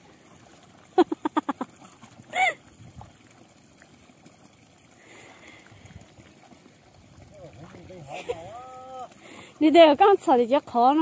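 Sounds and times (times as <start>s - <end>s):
water trickling into pond: 0.0s - 11.0s
man laughing: 1.0s - 1.6s, 7.9s - 9.1s
man exclaiming: 7.7s - 9.1s.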